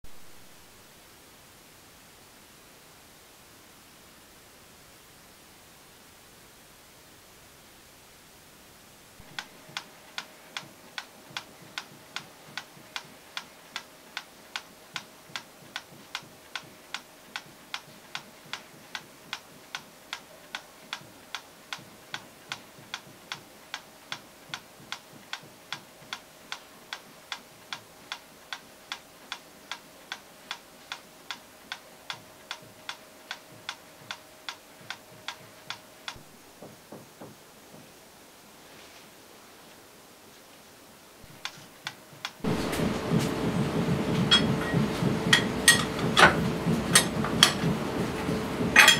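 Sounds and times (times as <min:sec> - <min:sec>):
steady ticking: 0:09.2 - 0:36.2.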